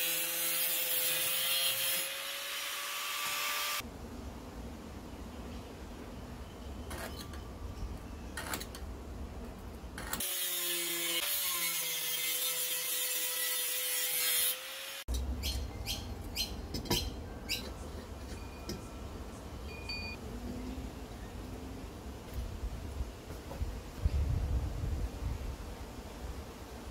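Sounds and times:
angle grinder cutting steel: 0:00.0 - 0:03.8, 0:10.0 - 0:15.2.

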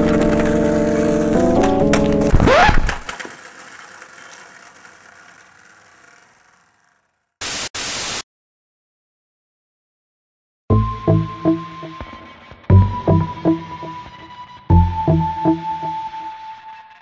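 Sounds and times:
bursts of static hiss: 0:07.4 - 0:08.2
intro music: 0:10.7 - 0:17.0.

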